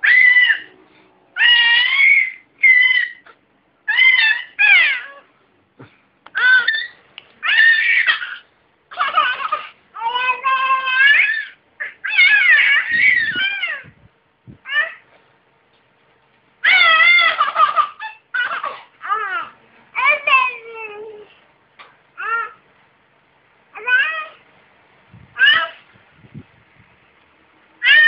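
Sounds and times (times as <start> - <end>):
baby squealing: 0.0 - 0.7, 1.4 - 5.2, 6.3 - 14.0, 14.7 - 15.0, 16.6 - 20.9, 22.2 - 22.6, 23.8 - 24.4, 25.4 - 25.8.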